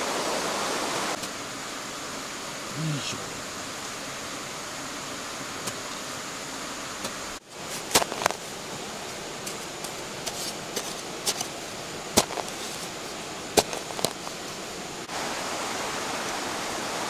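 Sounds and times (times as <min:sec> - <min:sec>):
river rushing: 0:00.0 - 0:17.0
digging tool chopping soil: 0:07.7 - 0:08.4, 0:09.4 - 0:11.5, 0:12.1 - 0:12.9, 0:13.5 - 0:14.3.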